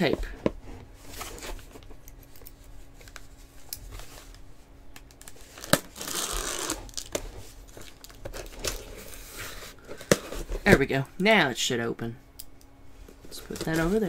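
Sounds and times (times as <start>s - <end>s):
package crinkling: 5.0s - 9.2s
packing tape tearing: 5.0s - 9.2s.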